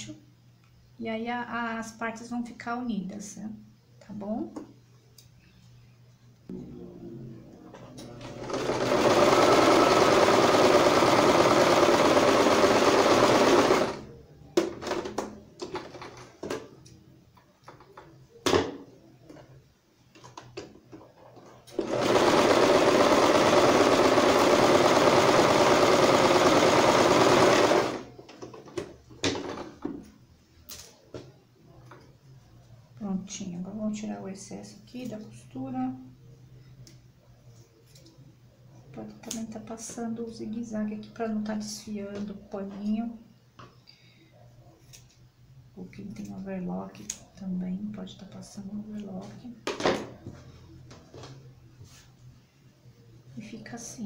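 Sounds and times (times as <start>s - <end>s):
sewing machine stitching: 8.0s - 14.1s, 21.7s - 28.1s
small clicks and handling noises: 37.8s - 38.2s.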